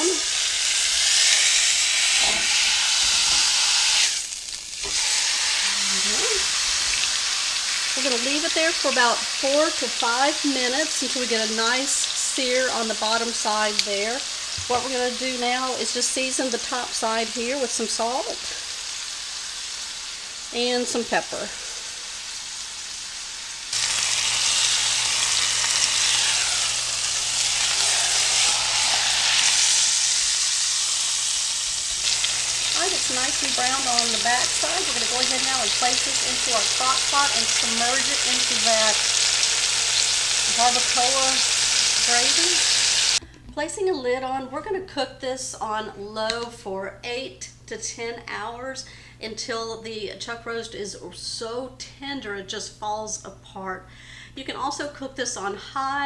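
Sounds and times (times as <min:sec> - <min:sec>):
meat sizzling in a skillet: 0:00.0 - 0:43.2.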